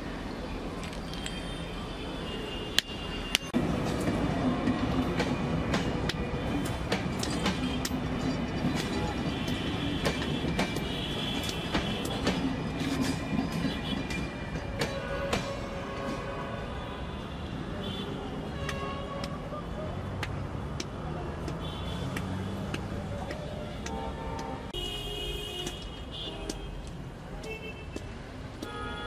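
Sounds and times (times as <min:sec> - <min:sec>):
train rumbling past: 0:03.6 - 0:16.8.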